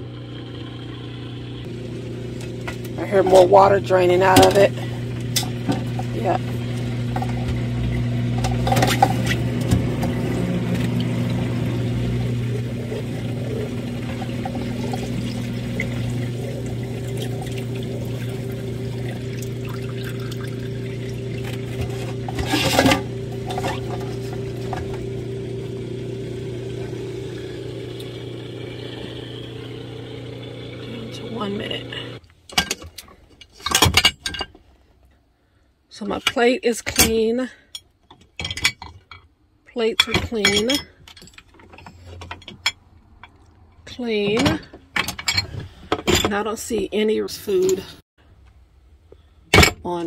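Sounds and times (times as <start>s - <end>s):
drain pump humming: 0.0s - 34.0s
water pouring into metal sink: 1.6s - 32.2s.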